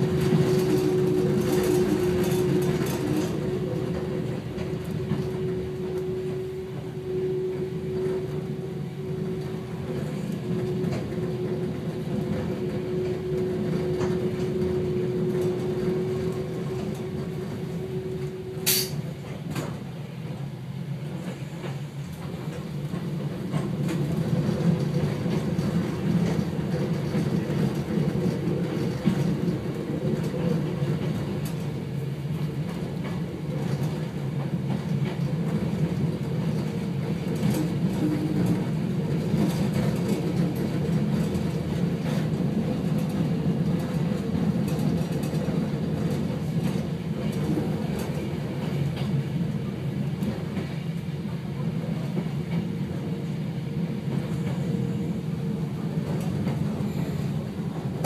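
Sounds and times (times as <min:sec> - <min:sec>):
train wheels rumbling on rails: 0:00.0 - 0:58.0
sharp click: 0:18.6 - 0:19.0.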